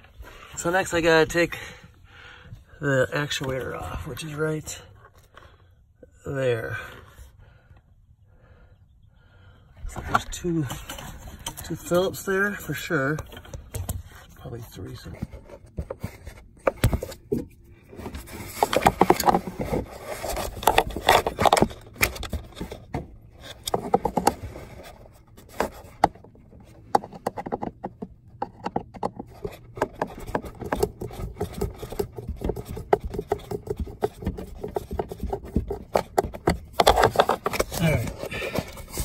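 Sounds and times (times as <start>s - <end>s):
screwdriver scraping plastic: 10.7s - 39.0s.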